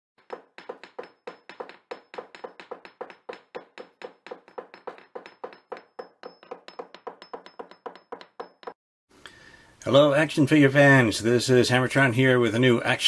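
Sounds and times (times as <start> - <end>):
sharp percussive knocks: 0.2 - 8.8.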